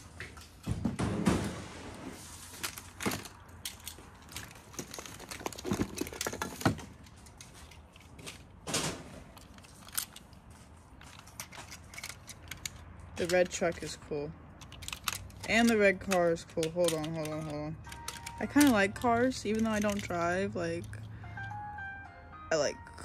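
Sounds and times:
crinkling and rustling: 0:00.0 - 0:21.0
toy cars being handled: 0:01.9 - 0:21.6.

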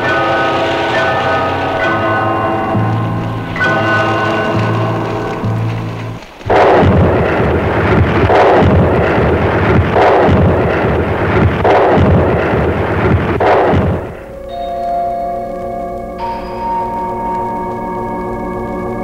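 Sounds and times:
loud explosion-like rumbling: 0:00.0 - 0:14.3.

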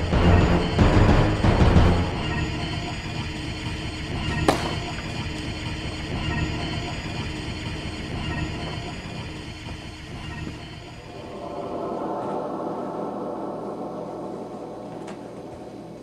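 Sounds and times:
suspenseful synthesized score: 0:00.0 - 0:16.0
sharp hit: 0:04.5 - 0:05.1.

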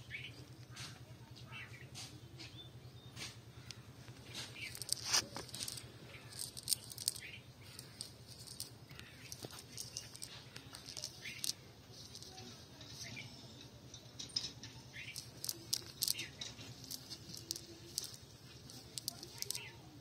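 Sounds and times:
net rustling and crackling: 0:04.2 - 0:13.1, 0:15.0 - 0:20.0.

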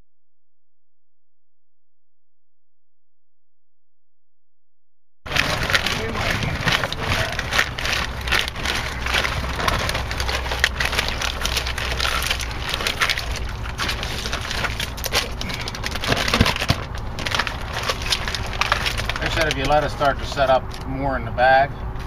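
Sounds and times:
plastic bag crinkling: 0:05.3 - 0:20.9.

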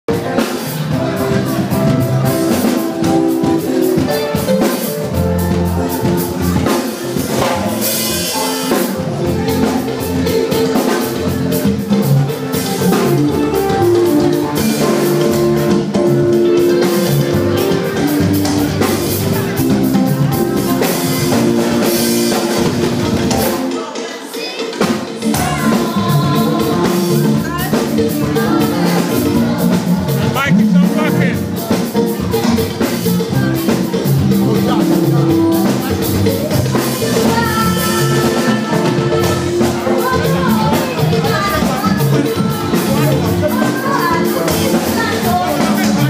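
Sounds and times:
drum kit beats: 0:00.0 - 0:46.0
instrumental accompaniment: 0:00.1 - 0:46.0
children's choir singing: 0:23.4 - 0:30.2.

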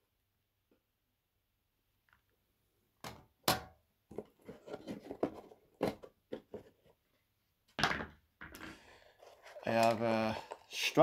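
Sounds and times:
packaging scrapes and knocks: 0:04.1 - 0:06.8, 0:08.6 - 0:10.9.

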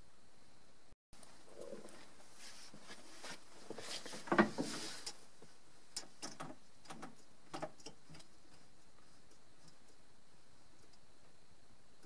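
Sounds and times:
light clicks and knocks: 0:04.1 - 0:10.0.

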